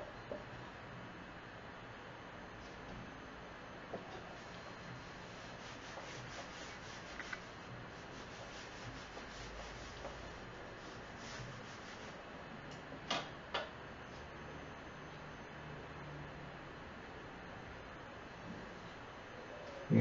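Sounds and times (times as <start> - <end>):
whiteboard eraser rubbing: 4.2 - 12.2.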